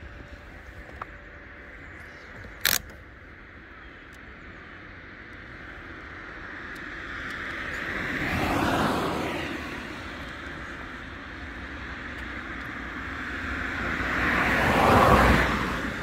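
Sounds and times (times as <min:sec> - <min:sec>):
wind and rolling noise: 0:00.0 - 0:16.0
motor vehicle passing: 0:05.8 - 0:16.0.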